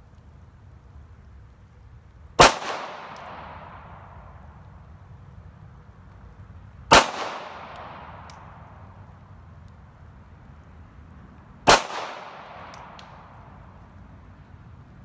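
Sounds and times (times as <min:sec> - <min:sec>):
pistol shots with echo: 0:02.4 - 0:03.8, 0:06.9 - 0:08.5, 0:11.6 - 0:13.2.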